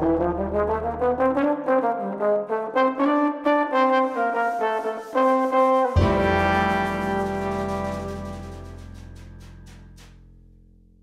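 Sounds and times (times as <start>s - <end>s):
melody of quick notes: 5.9s - 10.0s.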